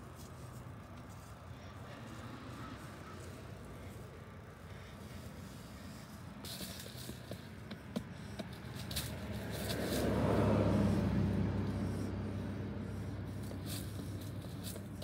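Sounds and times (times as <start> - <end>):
dry leaves crackling underfoot: 6.2 - 7.4, 8.5 - 10.7, 13.3 - 15.0.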